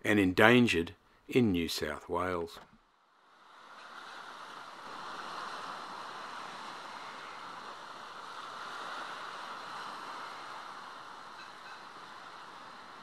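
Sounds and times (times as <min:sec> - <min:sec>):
sea surf on rocky shore: 0:03.1 - 0:13.0.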